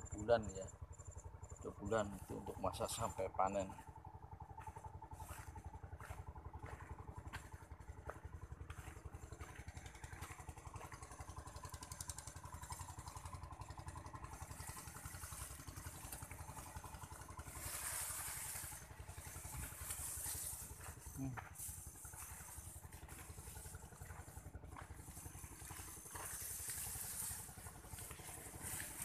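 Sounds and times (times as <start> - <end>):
small engine running: 0.0 - 29.0
rustling hiss: 14.4 - 24.0, 25.0 - 29.0.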